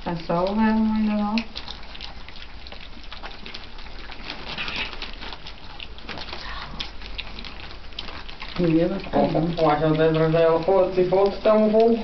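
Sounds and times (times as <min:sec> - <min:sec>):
puppies lapping wet food: 0:00.0 - 0:12.0.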